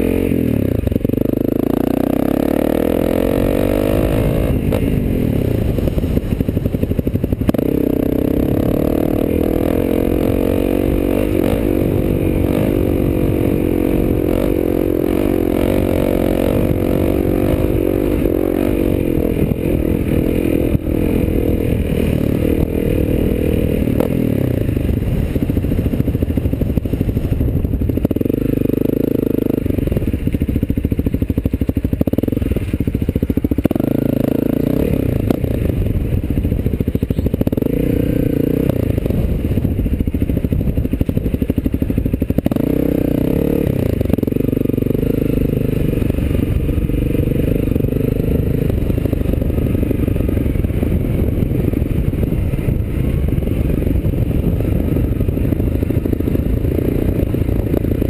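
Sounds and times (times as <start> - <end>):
dirt bike engine revving: 0.0 - 58.0
motorbike clatter: 35.2 - 58.0.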